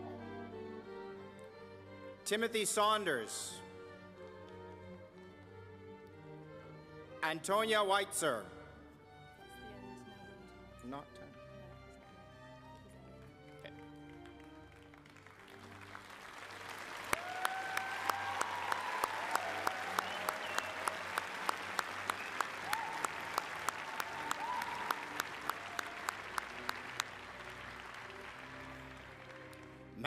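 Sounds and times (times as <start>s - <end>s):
large audience applauding: 12.8s - 30.0s
nearby hands clapping: 13.2s - 29.8s.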